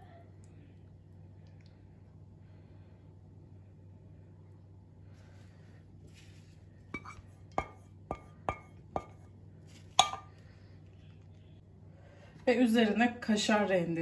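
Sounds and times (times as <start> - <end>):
pan clinking on ceramic dish: 7.0 - 9.2, 10.0 - 10.3.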